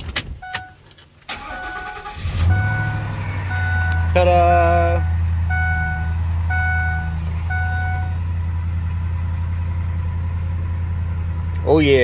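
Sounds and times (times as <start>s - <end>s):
van engine idling: 0.0s - 12.0s
dashboard warning chime beeping: 0.4s - 8.2s.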